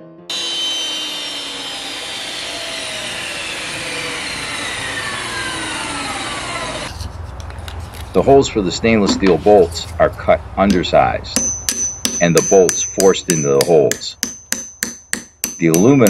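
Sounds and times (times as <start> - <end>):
table saw whine winding down: 0.3 - 6.9.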